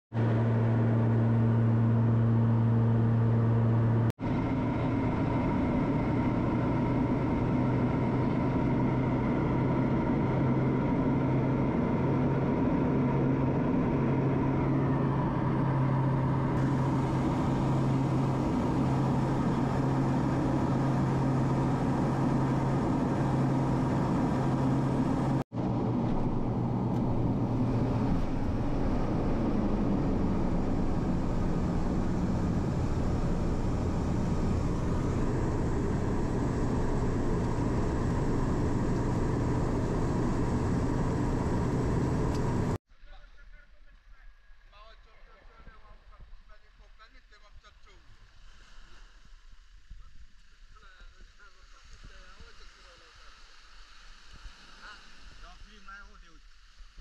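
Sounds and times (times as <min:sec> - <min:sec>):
propeller airplane engine droning: 0:00.1 - 0:42.8.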